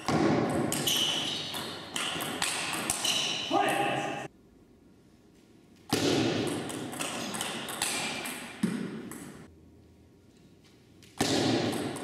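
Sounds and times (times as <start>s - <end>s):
table tennis ball hits: 0.0s - 3.5s, 5.9s - 9.5s, 11.1s - 12.0s.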